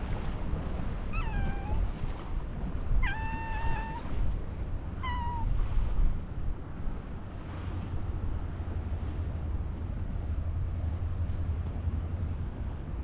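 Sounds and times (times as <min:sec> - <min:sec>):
wind rumble on microphone: 0:00.0 - 0:13.0
cat meowing: 0:01.1 - 0:01.9, 0:03.0 - 0:04.2, 0:05.0 - 0:05.6.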